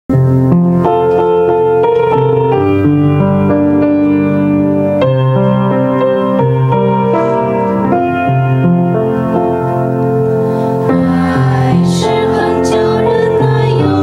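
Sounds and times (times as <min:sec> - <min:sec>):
piano playing a hymn: 0:00.1 - 0:14.0.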